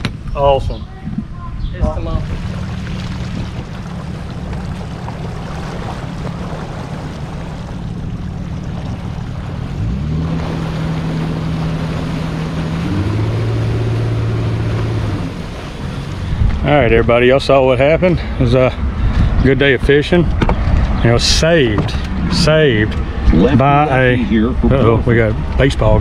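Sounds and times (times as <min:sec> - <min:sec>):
wind noise: 0:00.0 - 0:08.1, 0:16.1 - 0:17.2, 0:18.8 - 0:26.0
water noise: 0:00.0 - 0:26.0
outboard motor running: 0:01.8 - 0:26.0.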